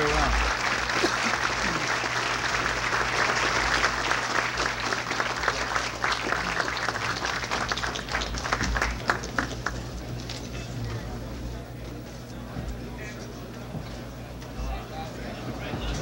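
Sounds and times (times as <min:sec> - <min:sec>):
large audience applauding: 0:00.0 - 0:10.3.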